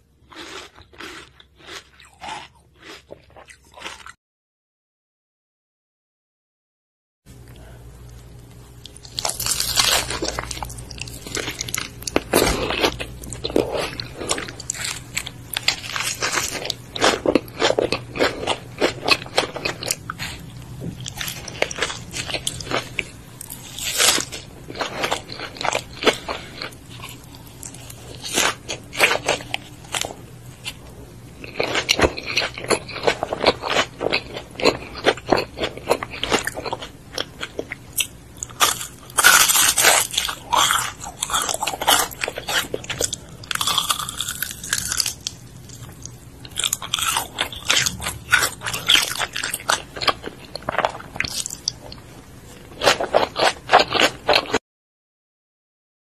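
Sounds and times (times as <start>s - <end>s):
crunchy food bites: 0.3s - 4.2s, 8.8s - 52.0s, 52.7s - 54.6s
wet chewing: 8.8s - 52.0s.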